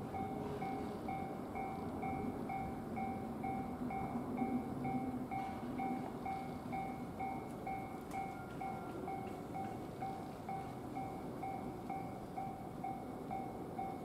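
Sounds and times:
level-crossing warning bell ringing: 0.0s - 14.0s
train rumbling: 0.0s - 14.0s.

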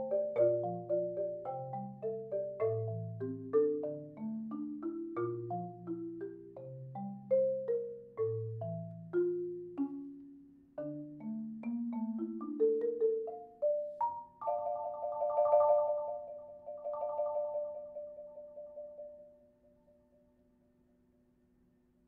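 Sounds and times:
marimba notes: 0.0s - 19.5s
rolled marimba chord: 0.0s - 19.5s.

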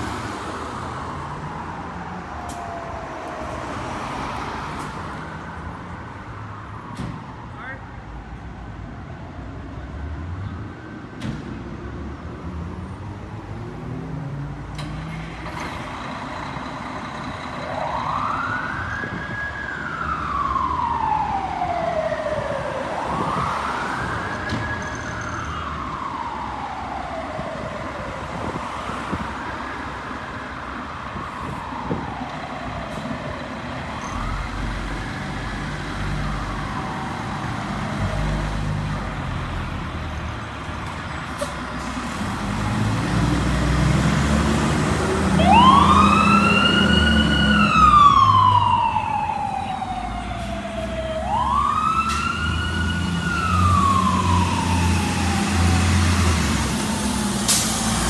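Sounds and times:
siren wailing: 17.6s - 29.4s, 45.0s - 57.4s.

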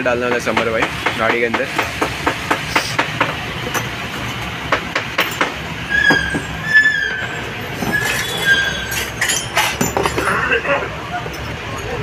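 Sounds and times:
high-pitched squeal: 5.9s - 9.6s
small metal parts clinking on wood: 7.8s - 10.4s.

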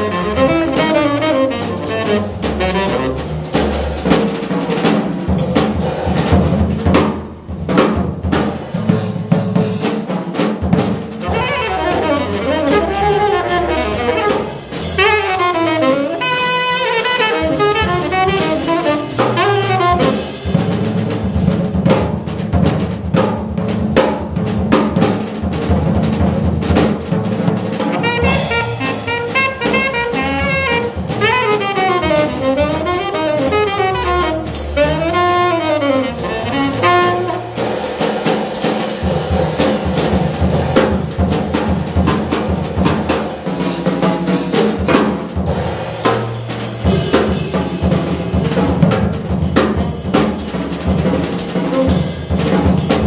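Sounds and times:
drum kit with cymbals: 0.0s - 53.0s
tenor saxophone runs: 11.3s - 20.0s, 28.0s - 37.6s
plucked upright bass: 29.1s - 37.4s.

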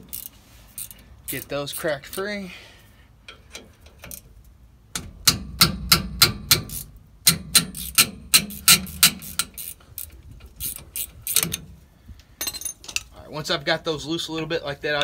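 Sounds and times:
metallic clicks and clunks: 3.2s - 11.8s.

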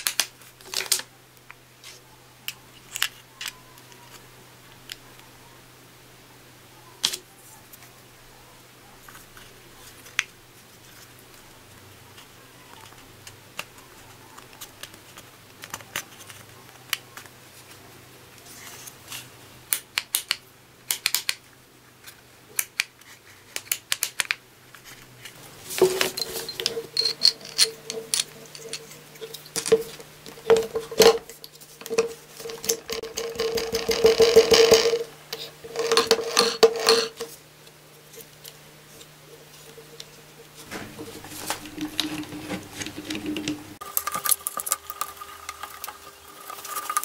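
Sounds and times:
clinking and rattling parts: 25.5s - 37.3s.

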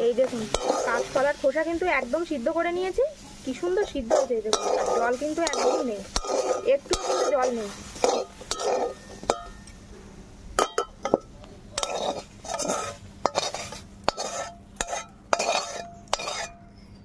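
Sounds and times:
spatula scraping metal pan: 0.0s - 1.5s, 3.5s - 9.7s, 11.8s - 16.6s
metal spatula clinking on pan: 0.5s - 1.1s, 4.1s - 9.8s, 10.6s - 16.6s.

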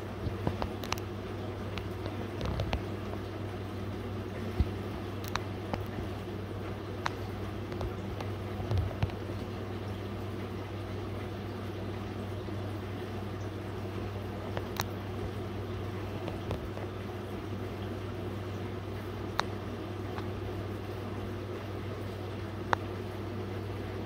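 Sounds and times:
aquarium filter humming: 0.0s - 24.0s
water trickling: 0.0s - 24.0s.

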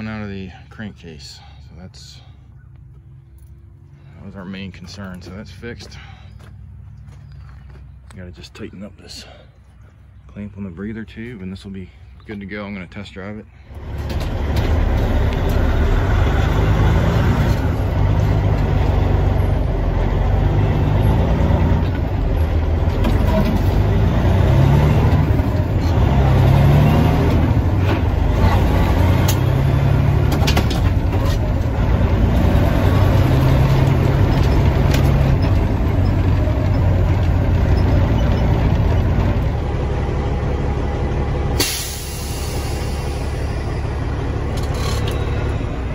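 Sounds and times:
diesel truck engine shifting gears: 0.0s - 45.9s
air brake hiss: 41.6s - 43.4s.

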